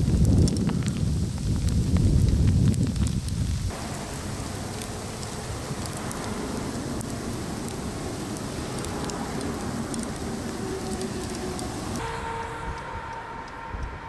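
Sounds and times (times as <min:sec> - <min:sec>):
roadside traffic hiss: 0:03.4 - 0:14.0
faint hum: 0:03.7 - 0:14.0.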